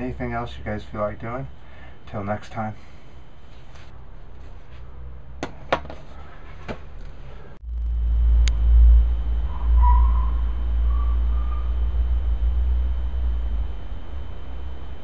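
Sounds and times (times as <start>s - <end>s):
low rumble: 7.6s - 15.0s
faint high tone: 8.9s - 14.0s.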